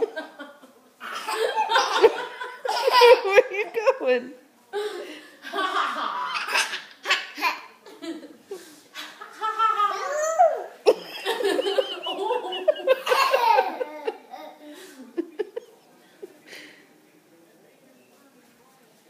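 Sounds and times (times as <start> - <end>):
toddler and adults laughing: 0.0 - 3.5, 4.8 - 16.4.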